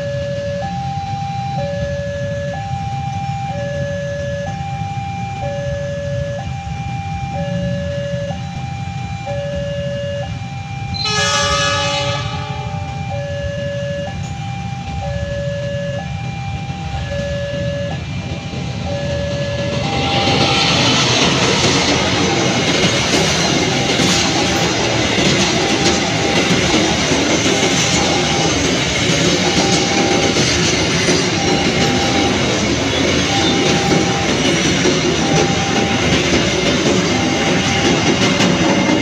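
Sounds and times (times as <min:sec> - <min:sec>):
freight train wheels on rails: 0:00.0 - 0:39.0
two-tone level-crossing alarm: 0:00.0 - 0:39.0.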